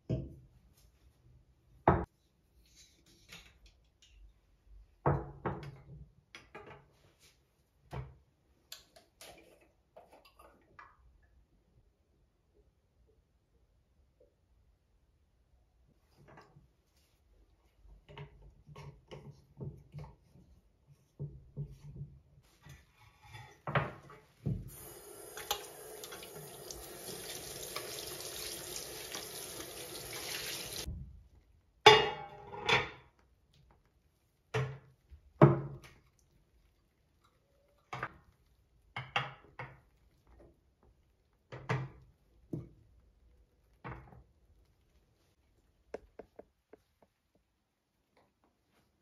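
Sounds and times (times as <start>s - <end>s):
tap running water into basin: 24.5s - 30.9s.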